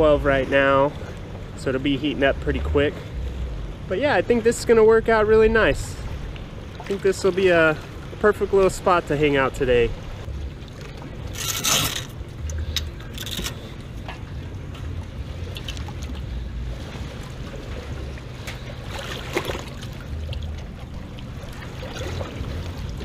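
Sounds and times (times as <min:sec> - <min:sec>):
small waves sloshing against hull: 0:00.0 - 0:23.0
ladder splash and clatter: 0:10.7 - 0:23.0
small splashes: 0:14.7 - 0:23.0.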